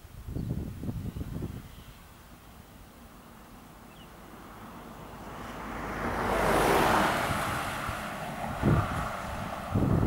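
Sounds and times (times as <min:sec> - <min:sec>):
wind gust on microphone: 0:00.0 - 0:02.2, 0:04.5 - 0:10.0
vehicle passing by: 0:03.0 - 0:10.0.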